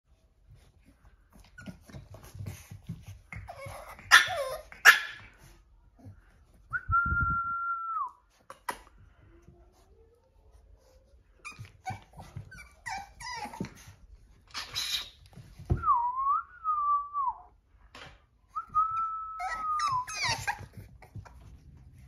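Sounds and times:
puppies whimpering and yapping: 3.3 - 5.2, 11.3 - 15.2, 19.3 - 21.5
high whistle: 6.7 - 8.2.

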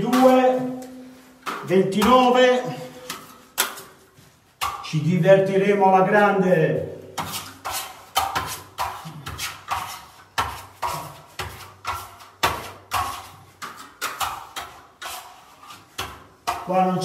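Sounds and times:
steel trowel scraping plaster: 7.2 - 12.3, 13.0 - 16.7.

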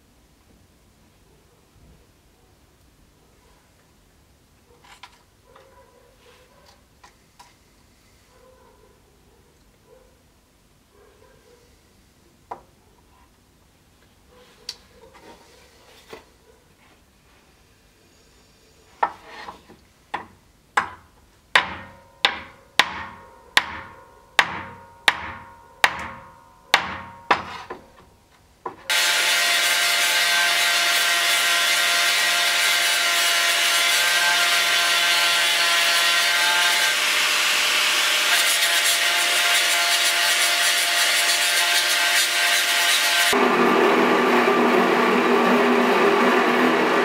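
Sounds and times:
hammer striking metal pins: 21.6 - 27.8
angle grinder grinding wood: 28.9 - 47.0.

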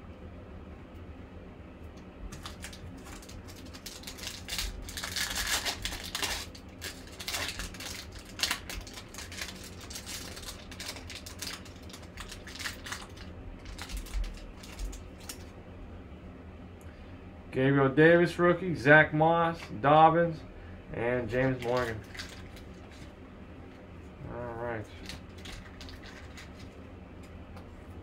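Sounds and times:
foil wrapper crinkling and tearing: 2.3 - 15.5, 21.3 - 23.1, 24.9 - 26.8.

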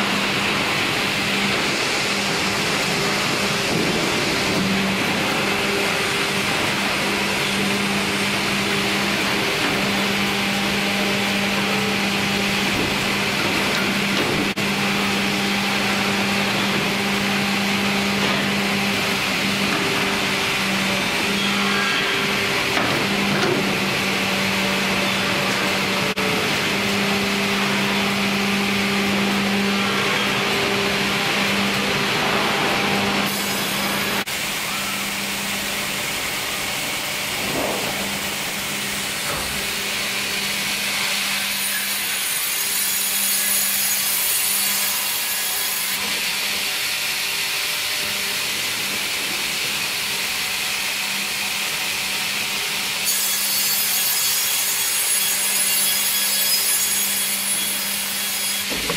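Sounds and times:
hydraulic log carriage: 0.0 - 42.8, 58.1 - 58.9
steady motor hum: 0.0 - 53.1
band saw running: 0.0 - 58.9.

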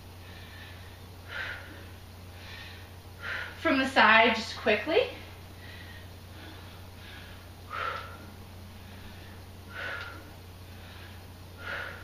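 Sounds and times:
steady low hum: 0.0 - 12.0
woman breathing out hard: 5.6 - 12.0.

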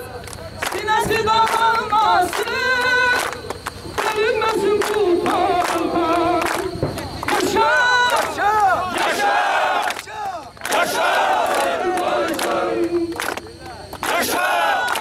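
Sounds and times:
rhythmic hand-clapping: 0.0 - 15.0
crowd of men singing: 0.8 - 15.0
men shouting: 7.5 - 11.9.

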